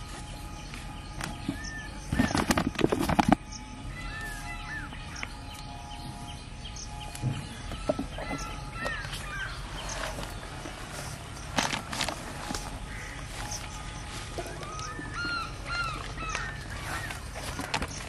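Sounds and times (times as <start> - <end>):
birds chirping and whistling: 0.0 - 18.0
loud rustling clatter: 1.2 - 3.5.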